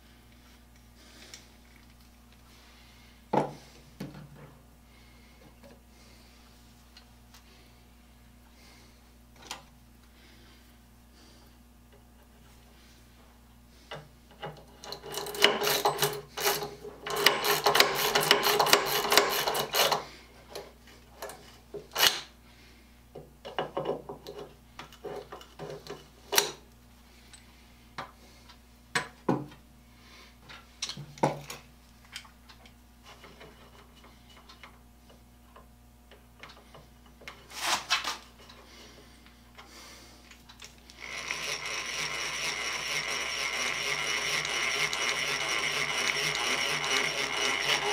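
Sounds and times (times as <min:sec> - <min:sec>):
hand drill gears whirring: 0:14.7 - 0:20.1, 0:40.9 - 0:47.9
ratchet tool rasping into wood: 0:14.8 - 0:20.0, 0:41.0 - 0:47.9.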